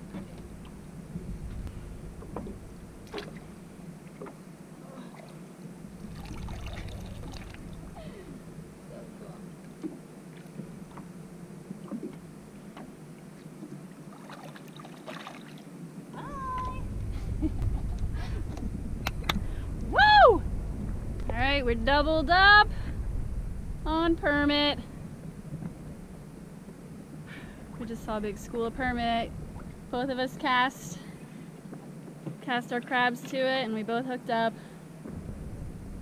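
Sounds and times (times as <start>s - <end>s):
wind rumble on microphone: 0.0s - 3.9s, 5.8s - 10.0s, 16.1s - 30.7s, 35.0s - 36.0s
water lapping and splashing: 0.0s - 16.9s.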